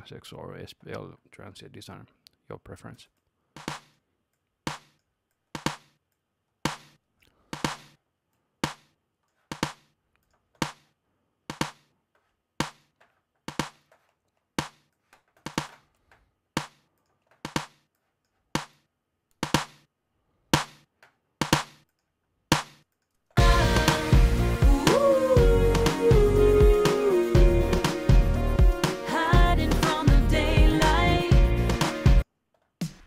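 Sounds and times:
snare drum hits: 0:03.6 - 0:03.9, 0:07.6 - 0:08.0, 0:19.4 - 0:19.8.

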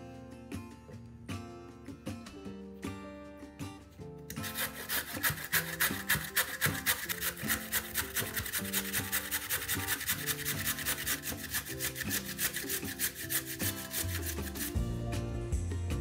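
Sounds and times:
carrot grating on metal grater: 0:04.3 - 0:14.8.

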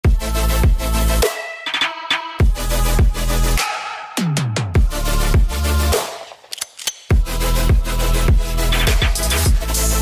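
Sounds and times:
electronic dance music: 0:07.1 - 0:10.0.

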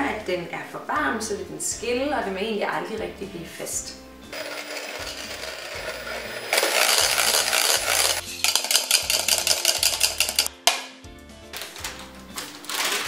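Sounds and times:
electric hand mixer whisking: 0:04.3 - 0:10.5.

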